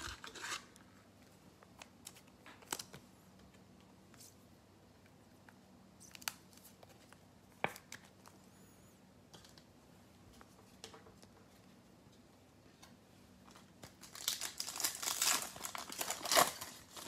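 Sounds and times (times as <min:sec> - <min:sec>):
wrapper rustling: 0:13.8 - 0:17.0.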